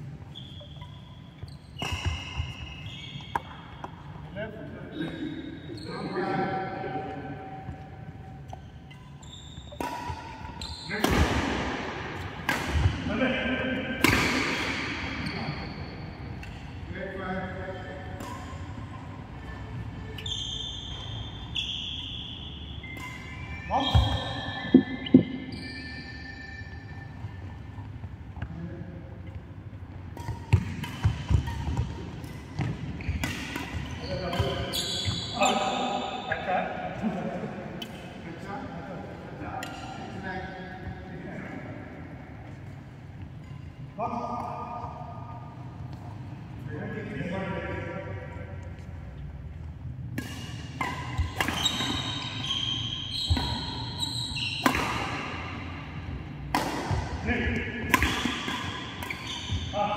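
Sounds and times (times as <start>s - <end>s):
sneakers squeaking on court: 0.0s - 4.3s, 7.5s - 13.0s, 14.0s - 16.9s, 17.7s - 28.5s, 29.2s - 36.4s, 49.9s - 59.9s
rackets hitting shuttlecock: 3.3s - 4.1s, 7.6s - 15.5s, 16.2s - 20.3s, 22.6s - 25.5s, 29.3s - 35.6s, 50.0s - 59.9s.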